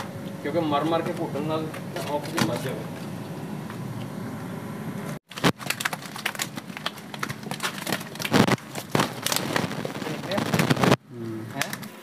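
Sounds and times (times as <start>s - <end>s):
wet net crinkling: 5.3s - 11.0s.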